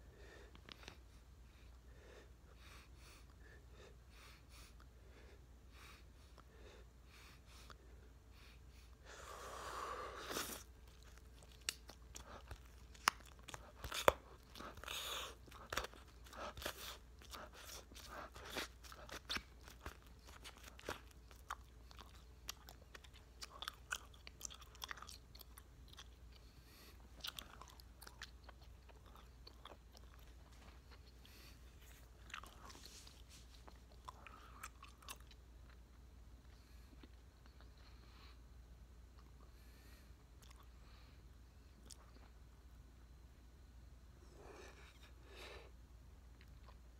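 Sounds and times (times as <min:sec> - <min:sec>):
chewing bubble gum: 0:10.3 - 0:26.5, 0:27.1 - 0:37.8.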